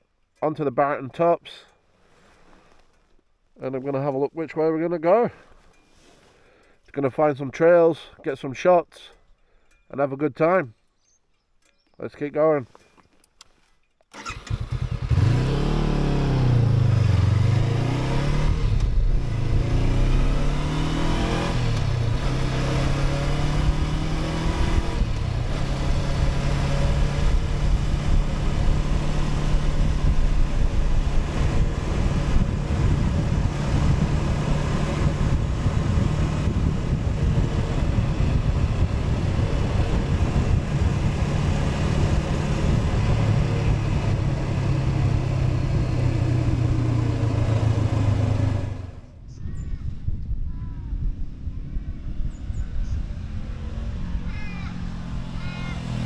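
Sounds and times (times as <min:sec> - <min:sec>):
motorcycle engine accelerating: 0:14.2 - 0:49.2, 0:51.1 - 0:56.0.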